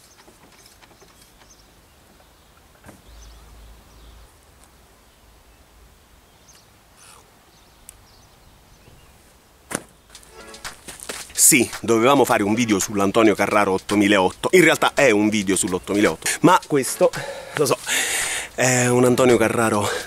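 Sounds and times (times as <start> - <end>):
faint outdoor background noise: 0.0 - 20.0.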